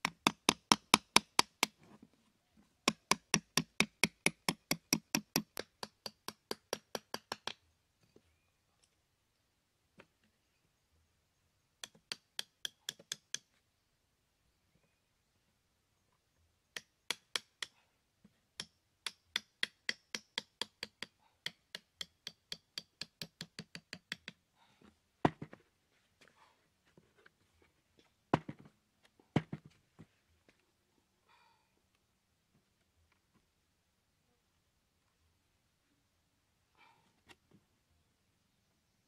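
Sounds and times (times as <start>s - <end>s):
hammer tapping nail: 0.0s - 1.7s, 2.9s - 7.6s, 18.6s - 24.4s.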